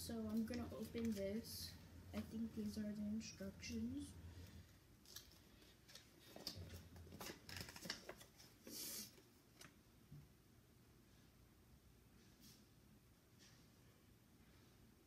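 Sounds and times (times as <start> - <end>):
paper rustling and crinkling: 0.2 - 1.6, 5.0 - 9.7.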